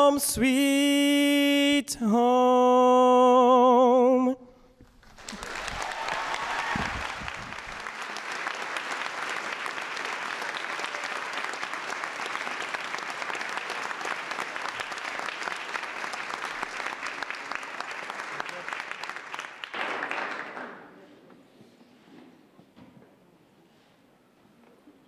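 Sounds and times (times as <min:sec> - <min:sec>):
audience applauding: 0:04.9 - 0:20.8.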